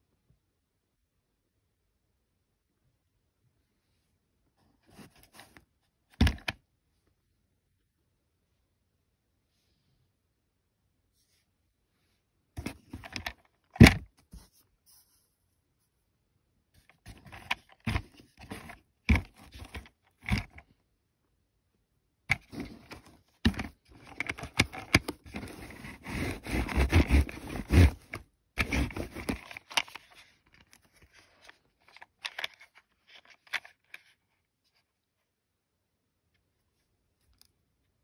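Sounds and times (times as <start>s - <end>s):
plastic toy bulldozer scraping: 16.9s - 20.6s, 22.3s - 30.2s.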